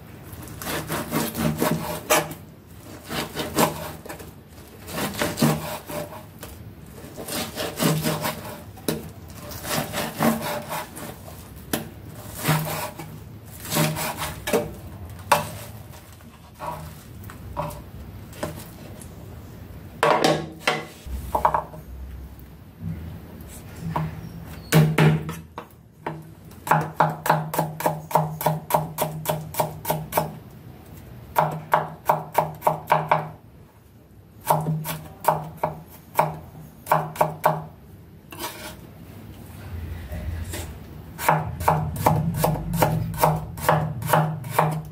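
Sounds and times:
knife slicing and scraping on board: 0.4s - 19.0s, 38.3s - 38.9s
knife chopping garlic on board: 26.0s - 30.4s, 31.4s - 33.4s, 34.4s - 37.7s, 41.2s - 44.9s.

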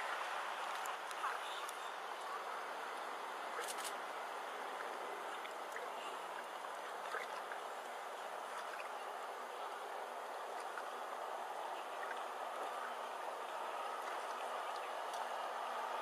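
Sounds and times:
lake water washing: 0.0s - 16.0s
small splashes: 4.7s - 15.7s.

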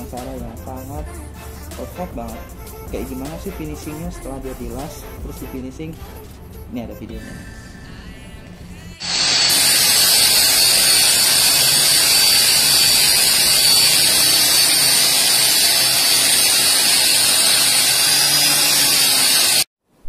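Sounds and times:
angle grinder on steel: 9.0s - 19.7s.

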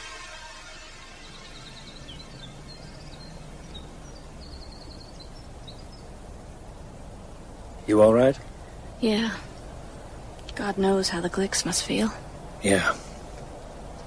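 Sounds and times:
soft background hiss: 0.0s - 14.0s
small birds chirping: 1.1s - 14.0s.

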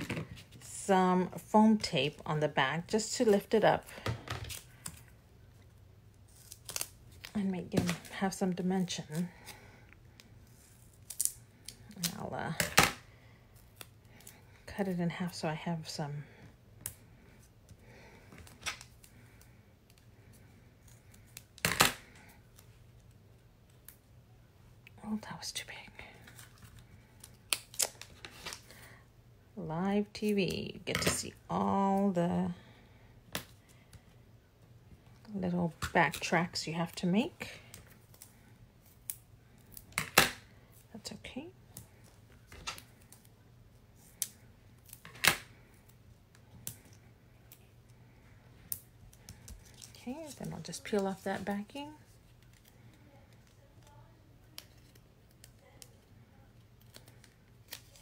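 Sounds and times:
tape and paper clicks and rustles: 48.7s - 58.0s.

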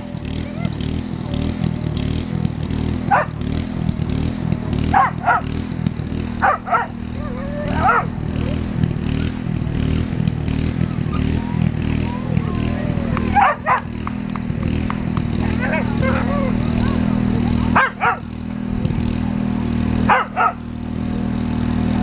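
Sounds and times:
steady low drone: 0.0s - 22.0s
dog barking: 3.1s - 3.4s, 4.9s - 5.5s, 6.4s - 8.6s, 13.3s - 13.9s, 15.5s - 16.6s, 17.7s - 18.3s, 20.1s - 20.6s.

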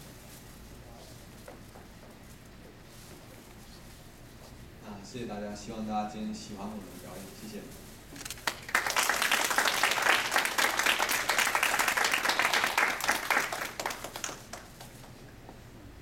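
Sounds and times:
audience applauding: 8.4s - 15.2s.

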